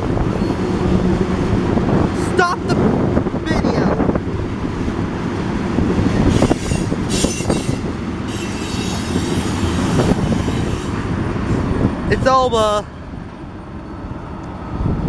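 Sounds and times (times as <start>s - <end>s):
train wheels rumbling on rails: 0.0s - 15.0s
high wheel squeal: 0.3s - 1.0s, 6.2s - 11.2s.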